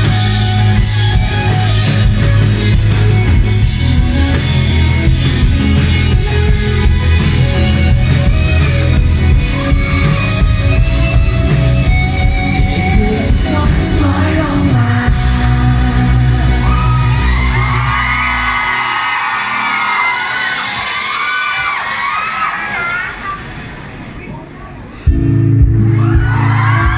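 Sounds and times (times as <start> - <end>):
live pop-rock band: 0.0 - 23.4, 25.0 - 26.9
person singing: 12.6 - 17.4.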